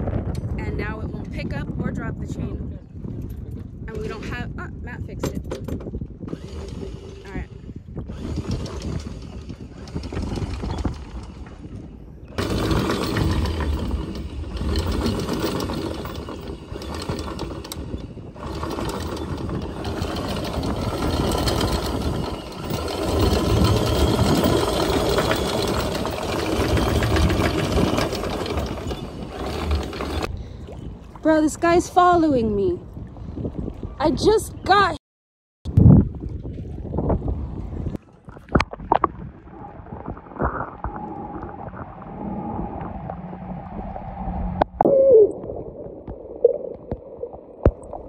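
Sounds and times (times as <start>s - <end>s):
anchor windlass rattling chain: 5.2s - 30.3s.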